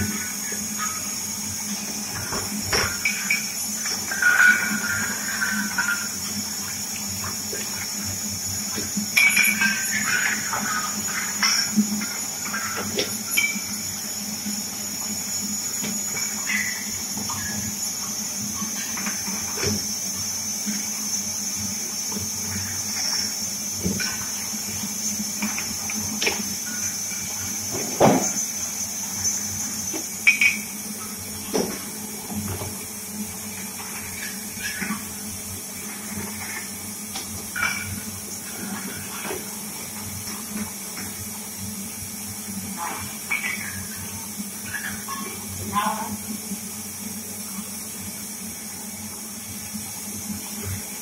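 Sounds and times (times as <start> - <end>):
water jets spraying: 0.0 - 46.3
pump motor humming: 0.0 - 51.0
glass bottles knocking: 2.7 - 6.2, 9.2 - 11.8.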